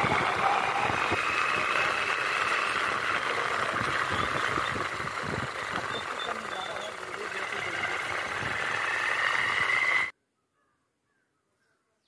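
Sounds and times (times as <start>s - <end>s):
motorcycle engine hum: 0.0s - 10.1s
road and wind noise: 0.0s - 10.1s.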